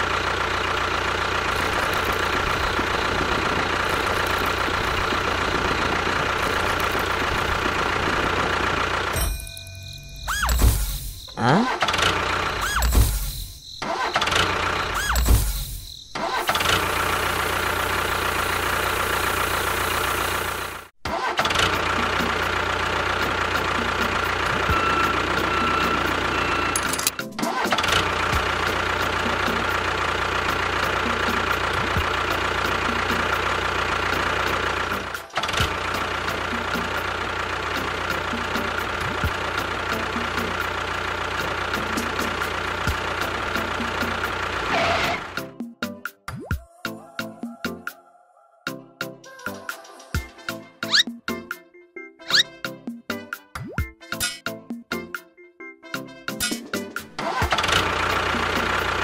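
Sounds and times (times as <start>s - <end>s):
tractor engine running: 0.0s - 45.6s, 56.4s - 59.0s.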